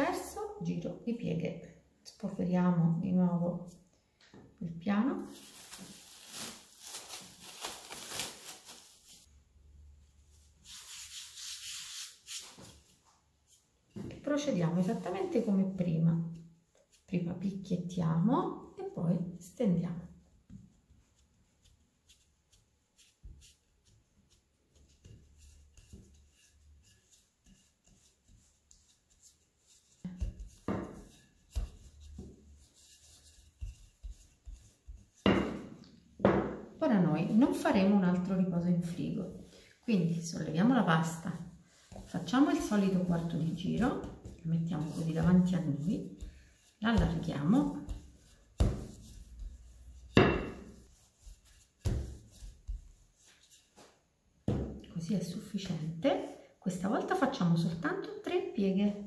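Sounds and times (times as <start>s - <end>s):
cling film crinkling: 5.4s - 9.2s
hand brushing flour over dough: 10.2s - 17.6s, 20.4s - 35.3s, 37.1s - 54.0s.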